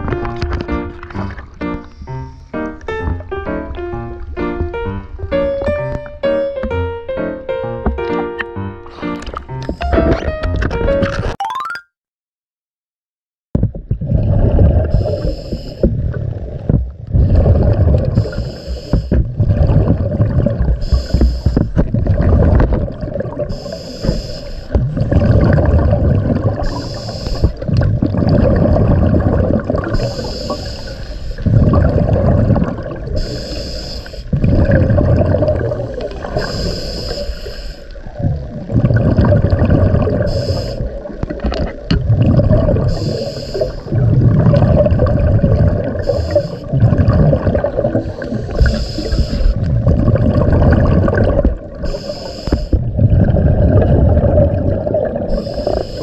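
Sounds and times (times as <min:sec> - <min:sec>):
regulator hissing inhale: 0:01.8 - 0:02.5, 0:14.8 - 0:16.0, 0:18.1 - 0:19.2, 0:20.8 - 0:21.8, 0:23.5 - 0:24.8, 0:26.6 - 0:27.6, 0:29.9 - 0:31.5, 0:33.1 - 0:34.4, 0:35.8 - 0:38.1, 0:40.2 - 0:41.1, 0:42.8 - 0:44.0, 0:46.0 - 0:46.7, 0:48.0 - 0:49.7, 0:51.8 - 0:52.8, 0:55.3 - 0:56.0
exhaled bubbles rushing: 0:13.6 - 0:23.7, 0:24.6 - 0:33.5, 0:34.3 - 0:37.1, 0:37.9 - 0:56.0.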